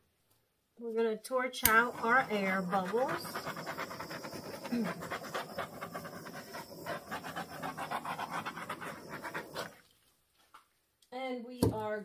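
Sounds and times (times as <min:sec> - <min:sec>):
torch flame pulsing hiss: 0:01.7 - 0:09.8.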